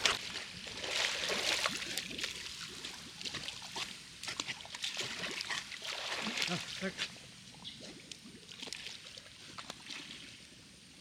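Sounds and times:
pool water splashing: 4.8 - 7.0.

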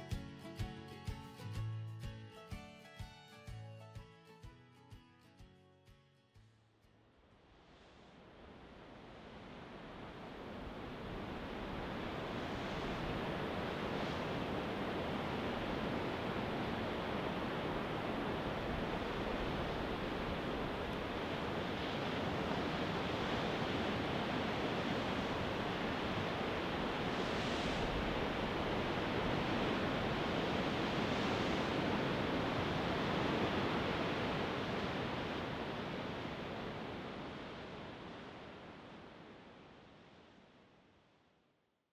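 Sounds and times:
ocean waves on beach: 7.5 - 40.6.

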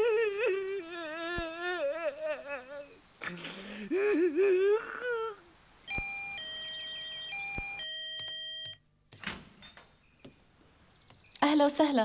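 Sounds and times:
electronic doorbell chime melody: 5.9 - 8.8.

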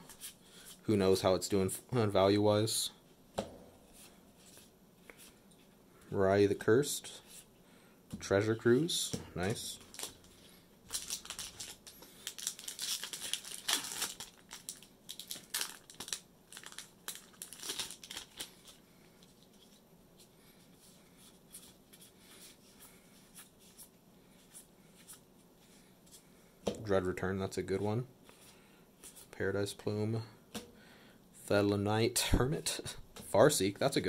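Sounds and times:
foil wrapper tearing and crinkling: 9.8 - 10.3, 10.9 - 18.8.

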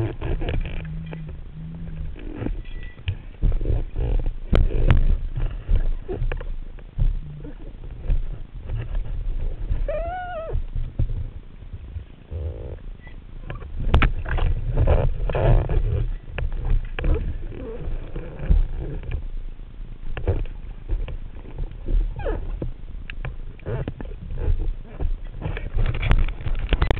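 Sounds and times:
underwater clicks and knocks: 0.0 - 12.1, 13.0 - 19.4, 20.0 - 26.9
underwater rumble of moving water: 0.0 - 26.9.

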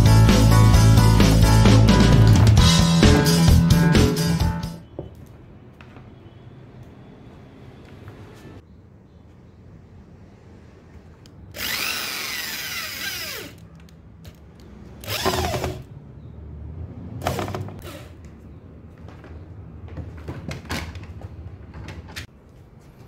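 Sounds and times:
power drill driving screws: 11.6 - 13.6, 15.0 - 15.8.

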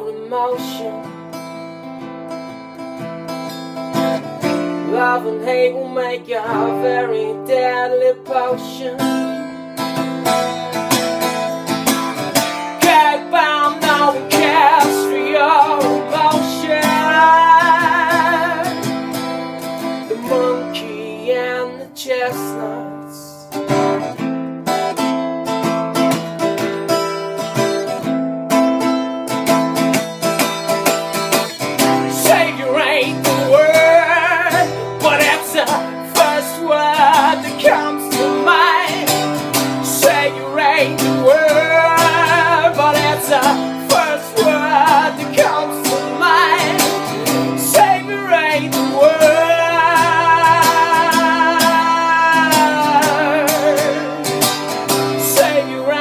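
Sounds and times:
man singing: 0.0 - 1.2, 4.6 - 9.5, 12.4 - 23.6, 31.8 - 56.0
acoustic guitar strumming: 0.0 - 56.0.

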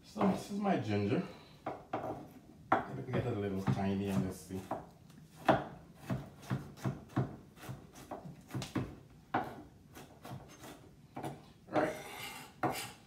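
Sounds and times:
knife chopping on wooden board: 1.6 - 12.0.

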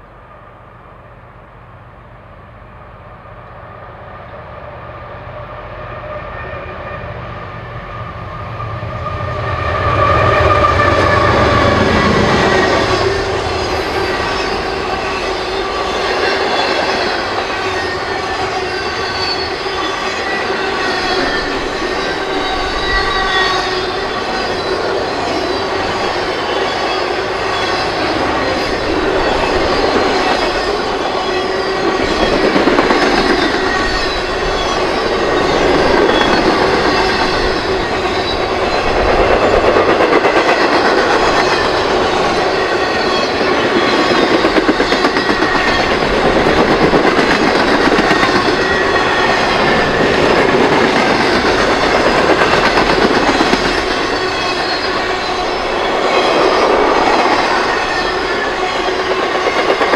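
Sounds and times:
train wheels rumbling over rail joints: 8.6 - 59.9
thin wheel squeal: 11.9 - 39.5.

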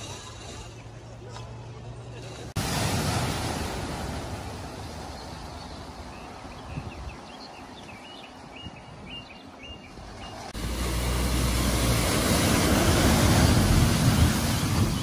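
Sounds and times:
floodwater rushing: 2.2 - 6.5, 9.9 - 15.0
wind buffeting microphone: 6.1 - 10.2, 11.9 - 15.0.

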